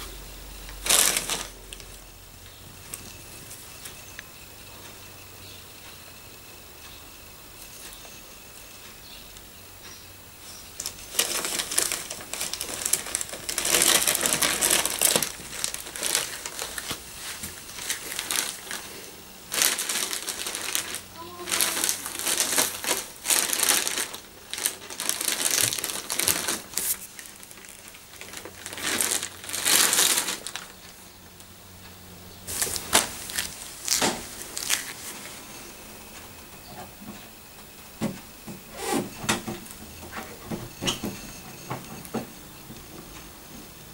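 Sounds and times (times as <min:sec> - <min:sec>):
plastic bag crinkling: 0:00.7 - 0:02.0, 0:10.8 - 0:31.4, 0:32.5 - 0:35.6.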